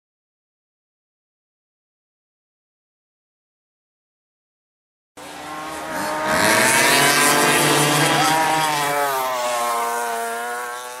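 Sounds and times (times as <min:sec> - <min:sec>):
small high-revving engine: 0:05.2 - 0:11.0.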